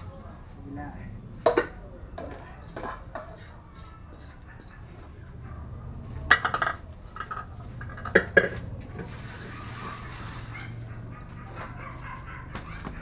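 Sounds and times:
pot clanking against metal bowls: 1.4s - 5.2s, 6.2s - 10.2s.

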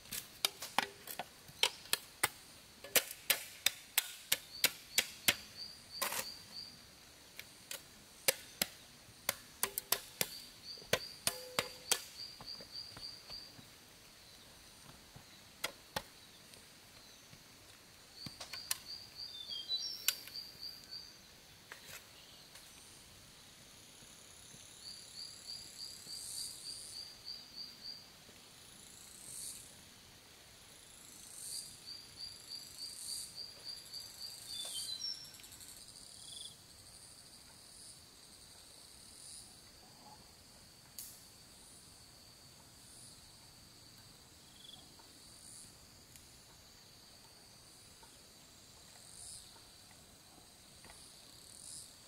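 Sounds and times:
hand tool knocking and chopping wood: 0.1s - 6.3s, 7.7s - 12.6s
insects trilling: 0.1s - 52.0s.

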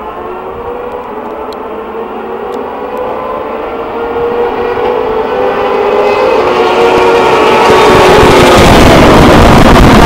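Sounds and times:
race car engines: 0.0s - 10.0s.

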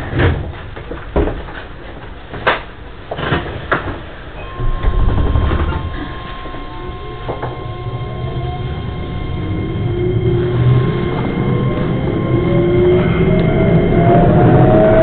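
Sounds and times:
train doors sliding shut: 3.3s - 8.0s
traction motors whining: 4.3s - 15.0s.

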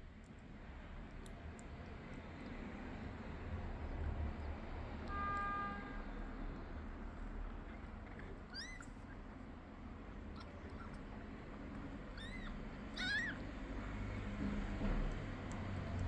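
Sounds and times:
kitten mewing: 8.3s - 9.1s, 10.2s - 13.5s.

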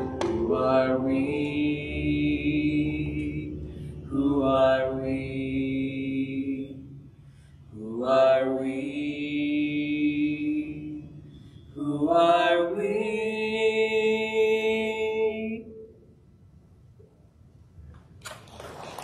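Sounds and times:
voices singing long held notes: 0.0s - 7.0s, 7.8s - 15.7s.

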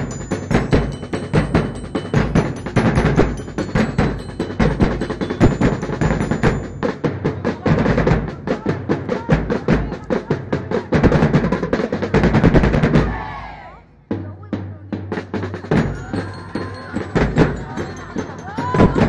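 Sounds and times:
fast drum beat music: 0.0s - 13.3s, 14.1s - 19.0s.

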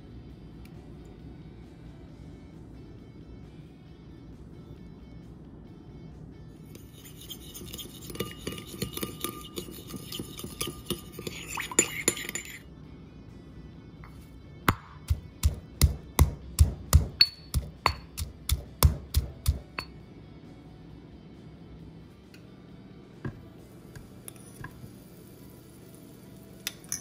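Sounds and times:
spoon clinking against ceramic bowl: 6.8s - 12.6s, 16.6s - 20.0s, 26.7s - 27.0s
pestle pounding in stone mortar: 14.7s - 19.9s.

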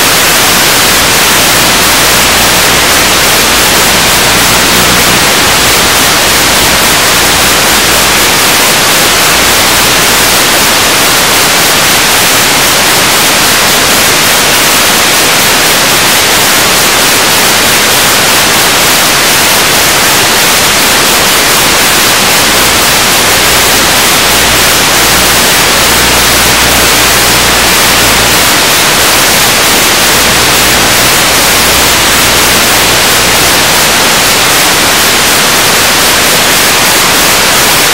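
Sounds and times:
static hiss: 0.0s - 37.9s.

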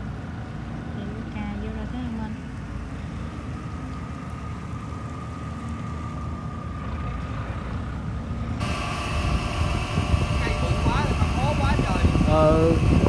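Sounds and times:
diesel engine idling: 0.0s - 13.0s
faint steady whine: 0.0s - 13.0s
machinery noise with hiss: 8.6s - 13.0s.

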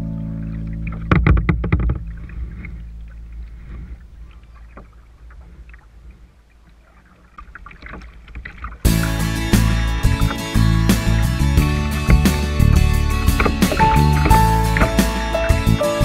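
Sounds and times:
low steady rumble: 0.0s - 6.8s
water along kayak hull: 0.0s - 15.9s
paddle splashes and drips: 0.5s - 9.7s.

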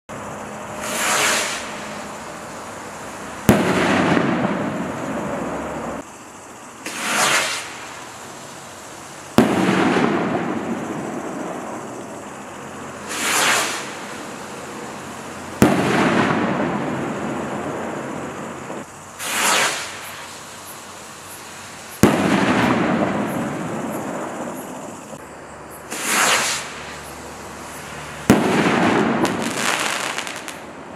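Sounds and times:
rocket bursting with sharp bang: 0.8s - 2.1s, 3.4s - 5.5s, 6.8s - 8.0s, 9.4s - 11.8s, 13.0s - 14.2s, 15.6s - 17.2s, 18.7s - 20.3s, 22.0s - 25.0s, 25.9s - 27.0s, 28.2s - 30.6s
rocket whooshing up: 0.8s - 2.2s, 6.9s - 7.9s, 13.0s - 14.2s, 19.2s - 20.3s, 25.9s - 27.0s.

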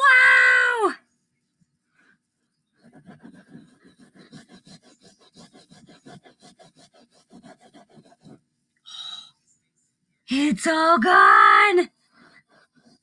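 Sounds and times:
cloth scrubbing carpet: 2.8s - 8.4s.

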